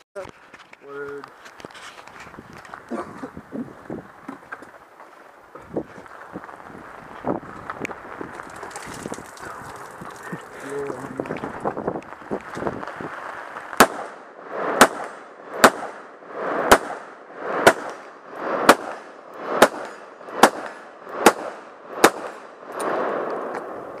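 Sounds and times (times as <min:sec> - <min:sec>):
rifle shots: 0:13.8 - 0:23.2.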